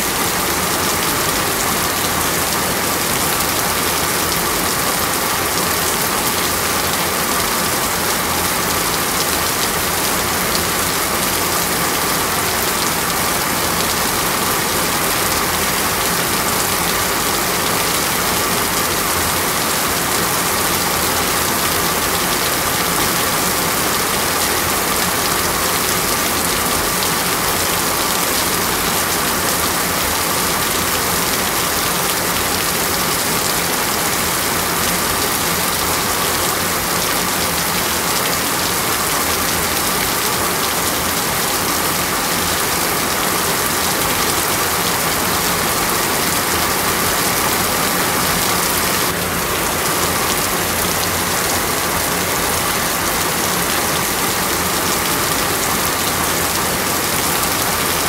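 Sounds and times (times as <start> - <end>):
heavy rain on a road: 0.0 - 58.0.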